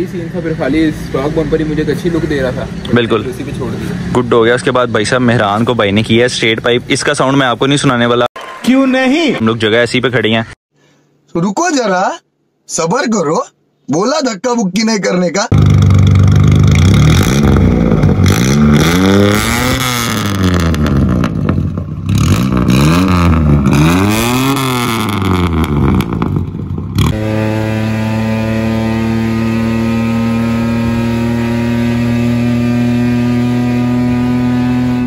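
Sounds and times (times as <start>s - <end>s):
car engine revving: 15.5s - 35.0s.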